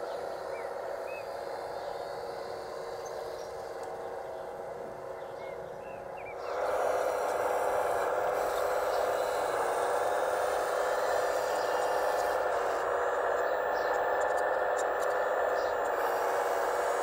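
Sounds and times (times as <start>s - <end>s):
hydraulic pump running: 6.3s - 17.0s.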